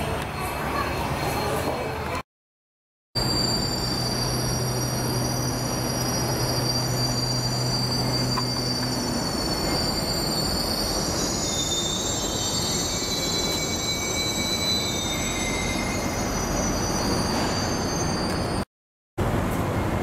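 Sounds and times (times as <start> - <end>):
high-pitched whines: 3.2 - 18.6
train rumble: 3.2 - 18.6.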